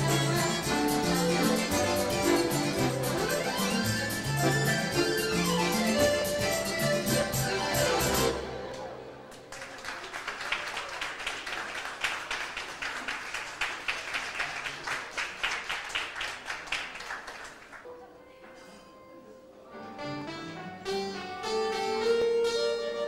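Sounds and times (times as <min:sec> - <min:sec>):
accordion playing: 0:00.0 - 0:09.3, 0:19.8 - 0:23.0
steady accordion note: 0:00.0 - 0:09.3
audience applause: 0:09.3 - 0:17.8.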